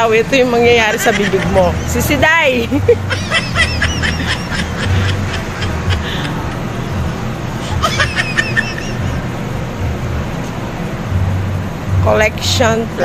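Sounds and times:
steady low rumble: 0:00.0 - 0:13.0
person laughing: 0:00.9 - 0:06.8, 0:07.6 - 0:09.2.

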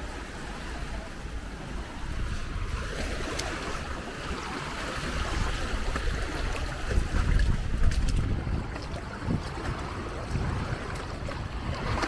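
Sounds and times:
surf washing up on beach: 0:00.0 - 0:12.0
wind buffeting microphone: 0:00.8 - 0:12.0.

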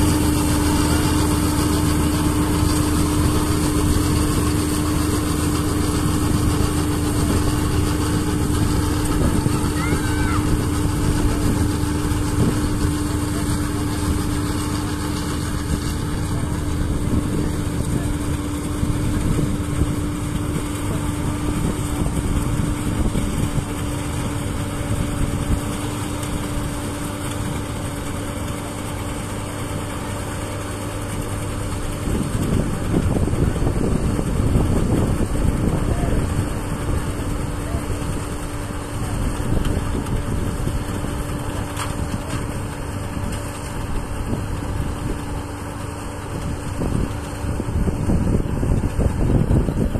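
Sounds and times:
combine harvester engine drone: 0:00.0 - 0:49.9.

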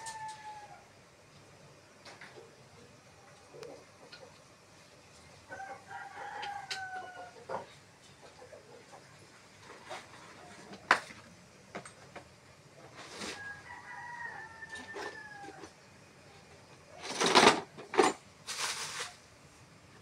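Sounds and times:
rooster crowing: 0:00.0 - 0:01.0, 0:05.4 - 0:07.7, 0:13.1 - 0:15.8.

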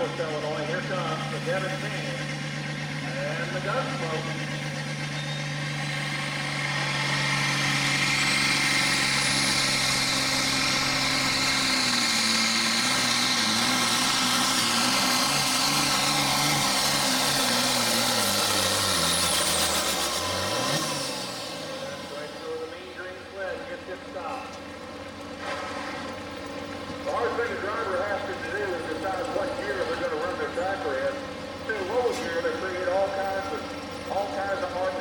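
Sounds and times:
diesel tractor engine at full throttle: 0:00.0 - 0:35.0
high turbo whine: 0:00.0 - 0:35.0.

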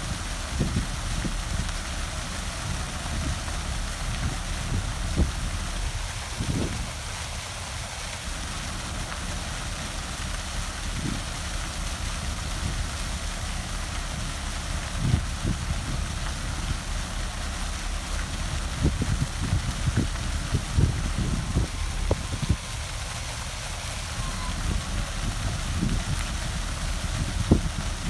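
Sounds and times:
low steady rumble: 0:00.0 - 0:28.0
water splashing into harbour: 0:00.0 - 0:28.0
low bumps: 0:10.2 - 0:28.0.

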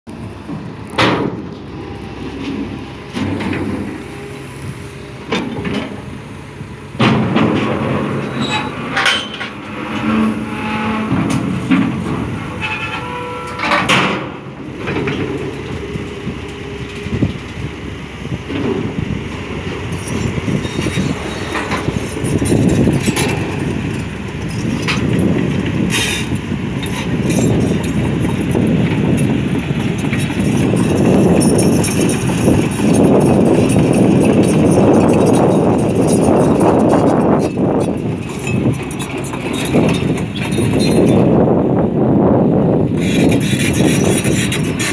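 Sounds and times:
excavator diesel engine running: 0:00.1 - 0:44.9
metal clanks and knocks: 0:00.4 - 0:01.5, 0:05.3 - 0:06.1, 0:07.0 - 0:15.8, 0:20.0 - 0:41.3.

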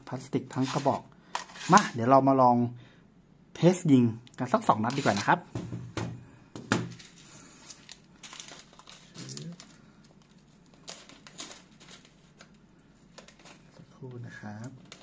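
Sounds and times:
soft handling rustles: 0:06.9 - 0:15.0.

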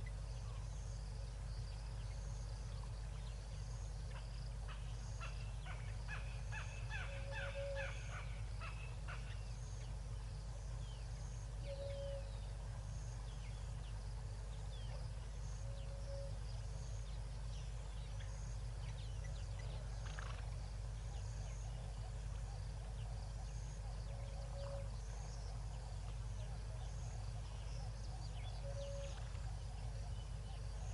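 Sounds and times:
steady low hum: 0:00.0 - 0:30.9
bird chirps: 0:22.9 - 0:30.9.

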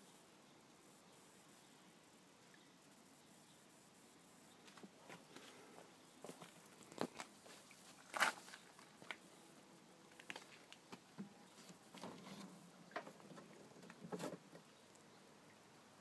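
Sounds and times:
faint footsteps: 0:04.6 - 0:09.3.

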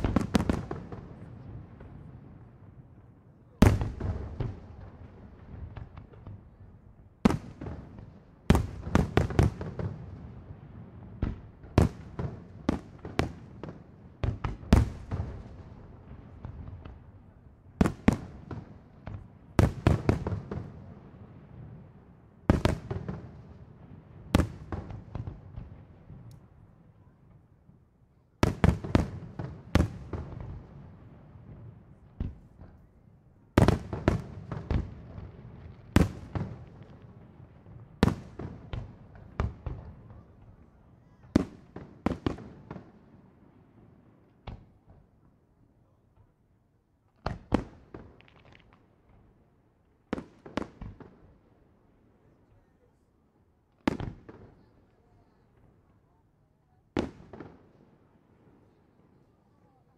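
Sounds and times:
fireworks bangs with echo: 0:00.0 - 0:03.0, 0:03.6 - 0:06.6, 0:07.2 - 0:26.3, 0:28.4 - 0:32.9, 0:33.5 - 0:45.1, 0:47.2 - 0:49.2, 0:50.1 - 0:51.3, 0:53.8 - 0:55.4, 0:56.9 - 0:57.8.

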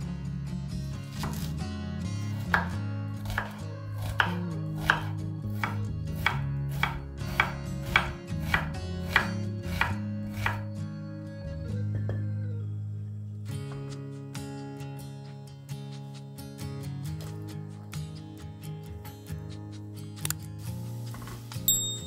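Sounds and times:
knife chopping on wooden board: 0:01.1 - 0:01.5, 0:02.4 - 0:10.7.

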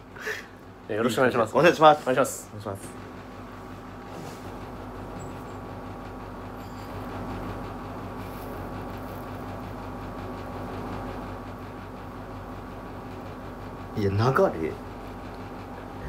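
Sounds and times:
mechanical hum of equipment: 0:00.0 - 0:16.0.

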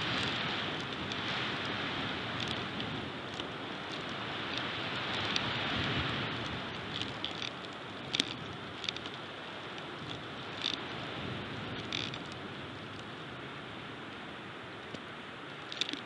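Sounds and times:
wind over microphone: 0:00.0 - 0:16.0
clicks and snaps of sticks: 0:06.4 - 0:10.8, 0:11.8 - 0:12.4, 0:14.9 - 0:16.0.

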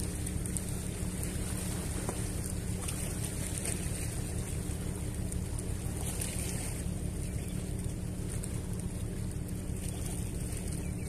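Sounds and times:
faint steady hum: 0:00.0 - 0:11.0
sea washing against rocks: 0:00.0 - 0:11.0
wind rumbling on microphone: 0:00.0 - 0:11.0.

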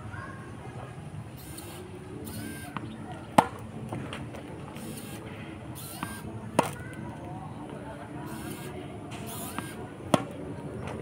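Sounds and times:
tennis racket hitting ball: 0:02.7 - 0:04.3, 0:05.9 - 0:06.9, 0:09.1 - 0:11.0.

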